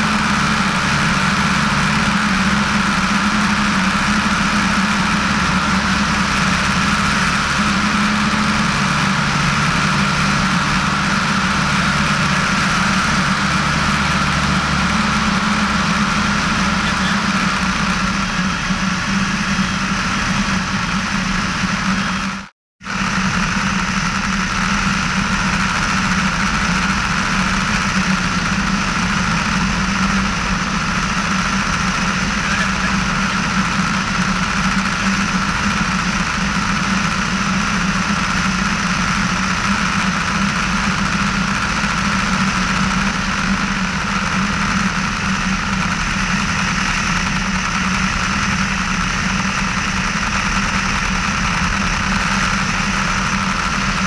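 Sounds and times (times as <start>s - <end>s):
light aircraft engine running: 0.0s - 54.0s.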